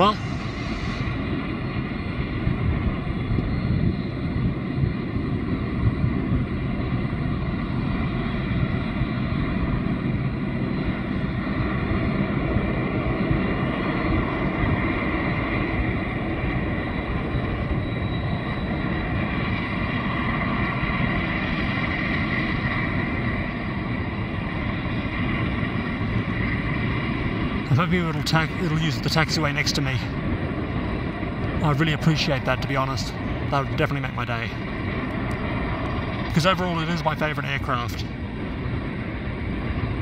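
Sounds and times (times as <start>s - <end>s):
jet taking off: 0.0s - 40.0s.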